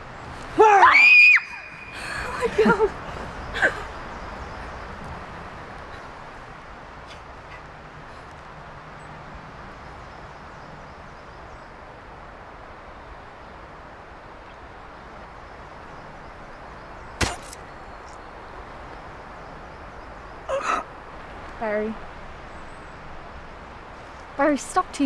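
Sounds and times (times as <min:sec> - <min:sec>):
outdoor background hiss: 0:00.0 - 0:25.0
sharp impact knocks: 0:17.2 - 0:17.6.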